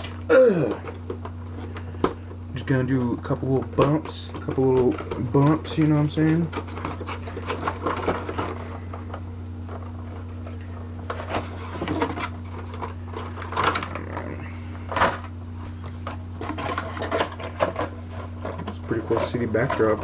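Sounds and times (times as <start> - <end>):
steady low hum: 0.0 - 20.0
plastic packaging rustling and clicking: 3.2 - 20.0
crinkling scrapes: 4.3 - 20.0.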